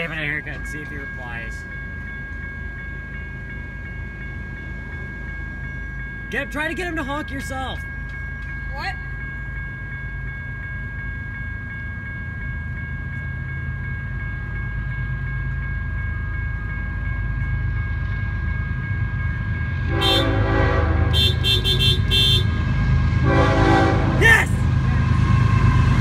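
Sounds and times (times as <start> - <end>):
crossing bell ringing: 0.0 - 26.0
train rumble: 0.0 - 26.0
train horn blasts: 19.8 - 22.6, 23.2 - 26.0.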